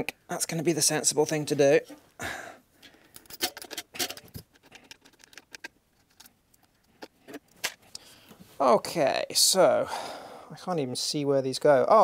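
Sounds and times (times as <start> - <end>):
metal hardware clicking and clinking: 2.8 - 7.8.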